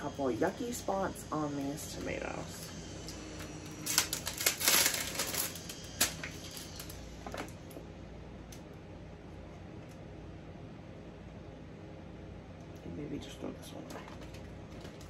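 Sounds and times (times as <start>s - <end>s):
plastic packaging crinkling: 3.2s - 7.5s.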